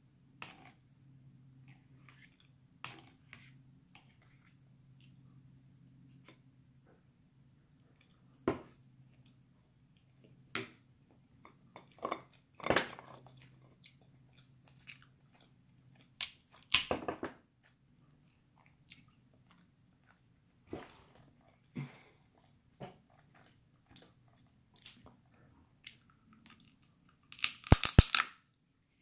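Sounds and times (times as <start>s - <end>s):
faint low hum: 0.0s - 16.7s
crab shells cracking: 16.2s - 17.0s, 26.5s - 28.4s.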